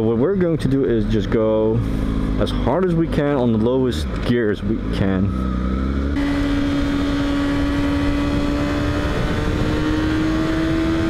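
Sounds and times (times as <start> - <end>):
motorcycle engine at high revs: 4.2 - 11.0
wind rushing: 5.8 - 11.0.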